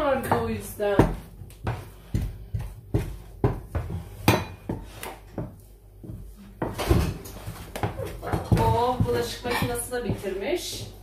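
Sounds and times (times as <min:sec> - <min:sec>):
dishes and utensils clinking: 0:08.0 - 0:09.9.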